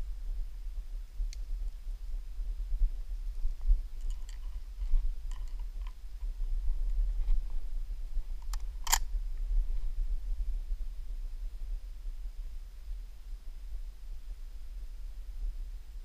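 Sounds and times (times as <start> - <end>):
steady low rumble: 0.0 - 16.0
handling clicks and rustles: 4.0 - 6.3.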